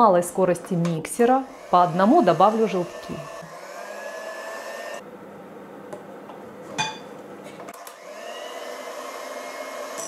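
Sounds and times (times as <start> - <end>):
electric hand mixer whining: 0.5 - 5.0, 7.7 - 10.0.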